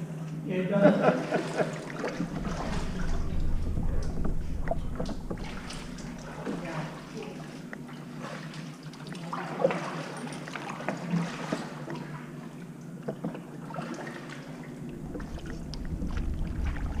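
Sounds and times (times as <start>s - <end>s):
water splashing around kayaks: 1.0s - 17.0s
wind buffeting microphone: 2.1s - 7.1s, 14.8s - 17.0s.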